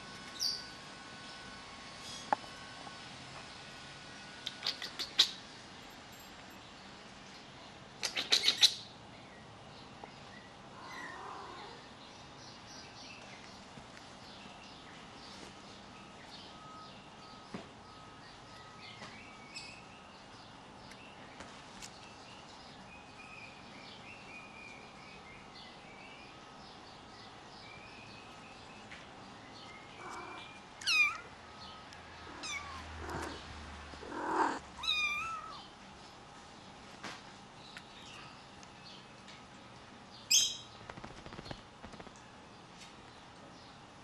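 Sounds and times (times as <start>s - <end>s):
kitten meowing: 30.0s - 31.3s, 32.3s - 33.4s, 34.0s - 35.6s.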